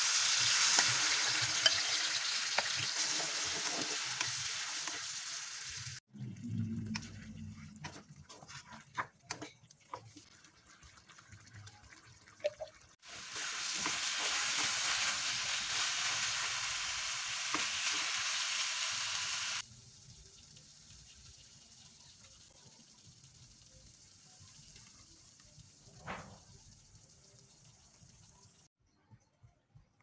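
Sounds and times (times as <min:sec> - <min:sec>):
sauce sizzling: 0:00.0 - 0:06.1, 0:06.9 - 0:26.0
spatula scraping and tapping wok: 0:00.2 - 0:05.2, 0:07.8 - 0:10.2.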